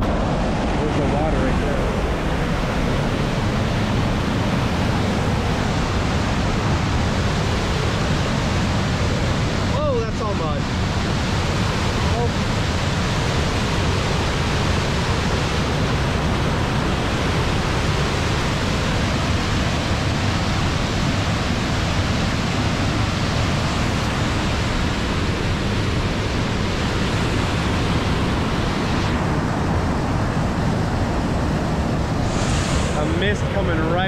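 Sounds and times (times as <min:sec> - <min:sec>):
whitewater roaring through gorge: 0:00.0 - 0:34.0.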